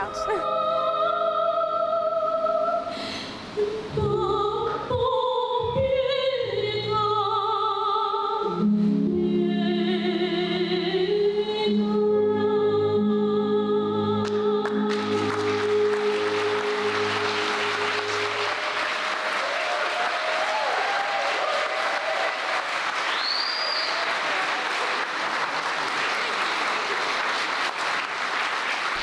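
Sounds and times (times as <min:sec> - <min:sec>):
woman singing opera: 0:00.0 - 0:18.4
audience applause: 0:14.7 - 0:29.0.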